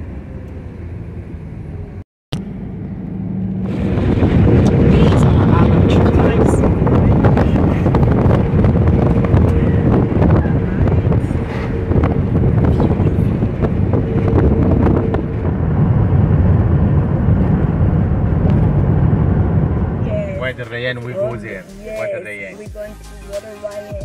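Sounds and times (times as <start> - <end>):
car road rumble: 0.0 - 22.6
wind on microphone: 3.2 - 20.6.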